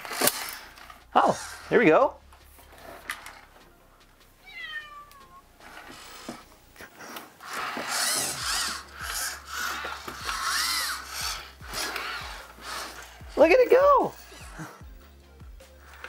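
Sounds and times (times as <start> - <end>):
robot servo motors whirring: 0.0 - 2.0, 5.6 - 14.8, 15.8 - 16.0.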